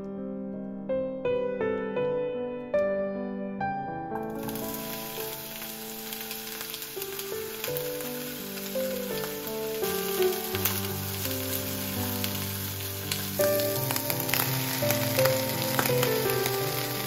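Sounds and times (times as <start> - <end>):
soft background music: 0.0 - 17.0
food sizzling in frying pan: 4.2 - 17.0.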